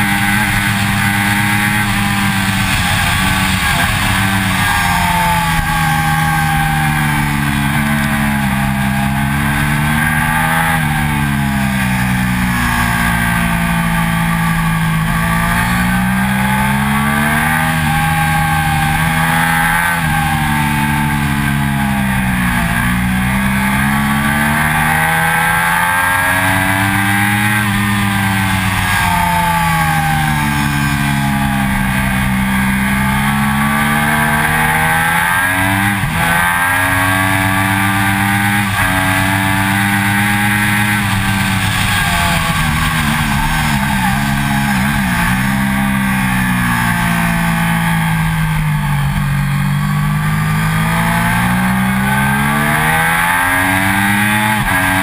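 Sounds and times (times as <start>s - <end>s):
motorcycle engine revving: 0.0s - 55.0s
wind and road noise: 0.0s - 55.0s.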